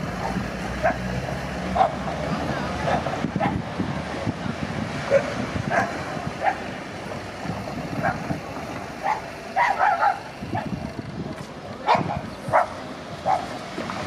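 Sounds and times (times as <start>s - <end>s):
dog barking: 0.2s - 1.0s, 1.8s - 2.0s, 5.1s - 6.7s, 8.0s - 8.4s, 9.0s - 10.7s, 11.8s - 13.5s.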